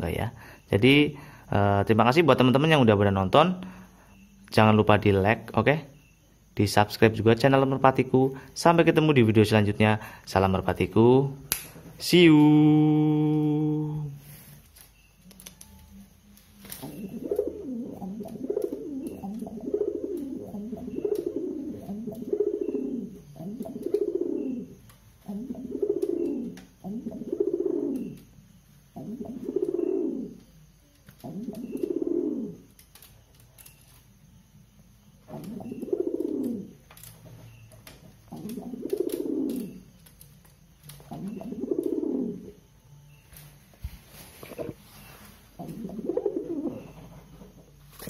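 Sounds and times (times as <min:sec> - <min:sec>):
pigeon cooing: 0:16.6 - 0:32.8, 0:35.2 - 0:36.8, 0:38.3 - 0:39.9, 0:40.9 - 0:42.7, 0:44.4 - 0:47.6.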